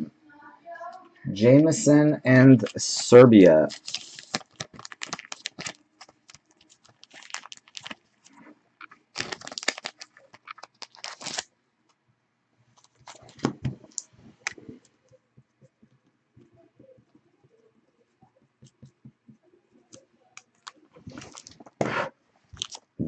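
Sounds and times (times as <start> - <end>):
plastic sleeve crinkling: 2.6 - 11.5, 12.7 - 14.8, 19.9 - 21.8, 22.5 - 23.0.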